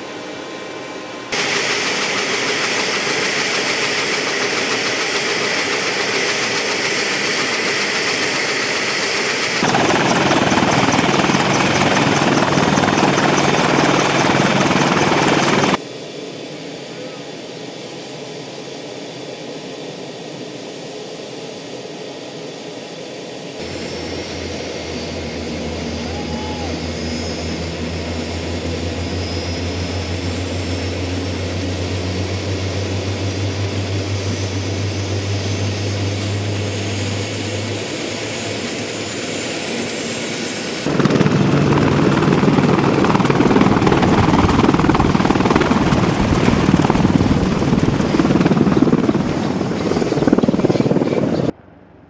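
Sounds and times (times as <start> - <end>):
high turbine whine: 0.0 - 16.3, 23.4 - 52.0
helicopter rotor beating: 1.4 - 15.8, 23.6 - 51.6.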